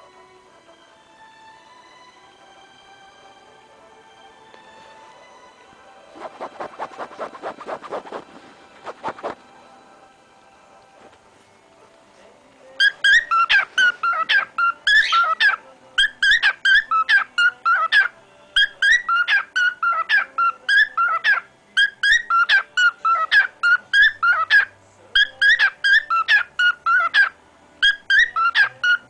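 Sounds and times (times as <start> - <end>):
cockatiel whistling: 12.8 - 29.0.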